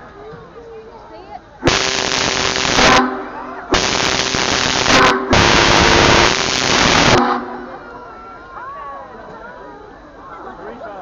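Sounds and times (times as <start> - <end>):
crowd voices: 0.0 - 11.0
steam locomotive whistle blasts: 1.7 - 3.2, 3.8 - 7.7.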